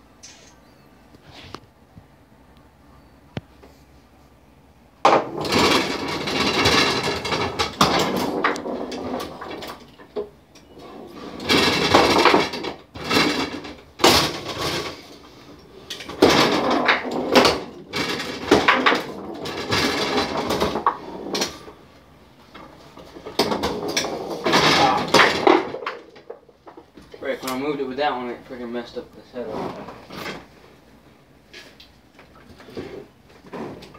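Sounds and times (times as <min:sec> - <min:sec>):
foosball rods knocking and sliding: 0:05.0 - 0:27.7, 0:29.3 - 0:30.8, 0:31.5 - 0:33.9
foosball ball and players clacking: 0:05.0 - 0:27.8, 0:31.5 - 0:33.9.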